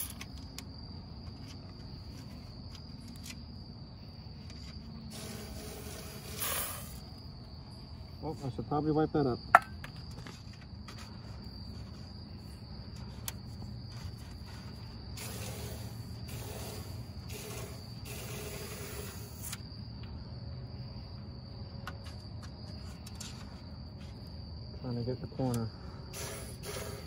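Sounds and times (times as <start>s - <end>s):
crickets chirring: 0.0s - 27.0s
aerosol spray hissing: 5.1s - 7.1s, 15.2s - 19.6s, 26.2s - 27.0s.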